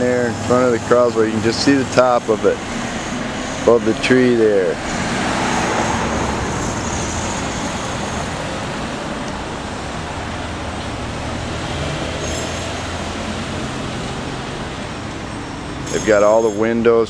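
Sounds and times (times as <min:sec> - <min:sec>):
road noise from passing cars: 0:00.0 - 0:17.0.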